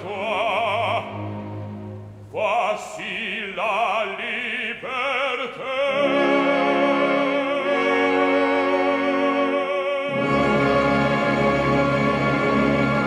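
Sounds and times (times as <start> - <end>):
orchestral string chords: 0.0 - 2.5, 5.9 - 13.0.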